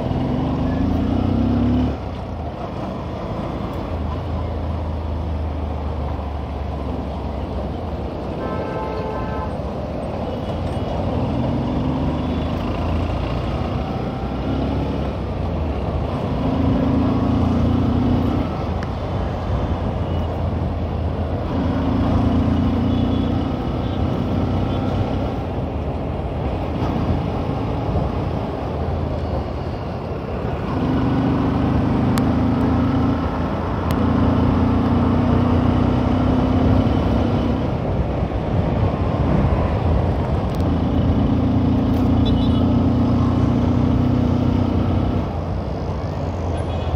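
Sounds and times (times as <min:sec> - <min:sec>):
road and traffic noise: 0:00.0 - 0:46.9.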